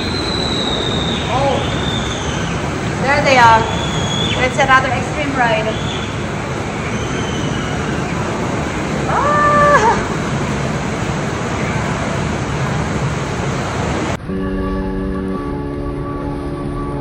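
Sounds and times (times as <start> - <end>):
outdoor waterpark din: 0.0 - 15.2
person screaming: 9.1 - 10.2.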